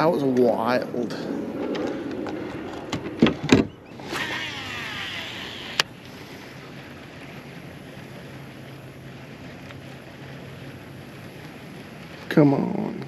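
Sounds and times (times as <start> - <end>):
fishing reel spool whirring: 3.7 - 12.7
reel click: 4.0 - 5.9.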